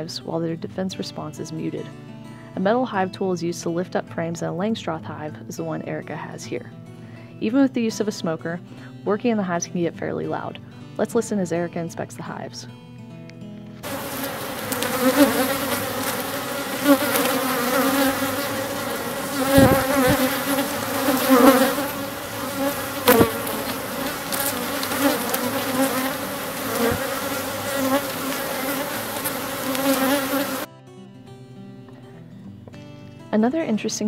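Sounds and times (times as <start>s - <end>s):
bees buzzing: 13.8s - 30.7s.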